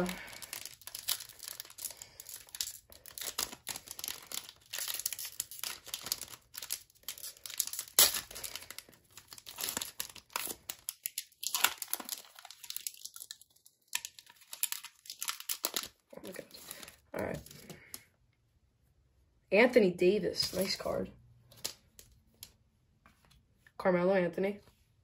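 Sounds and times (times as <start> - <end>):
foil wrapper crinkling and tearing: 0.0 - 18.0.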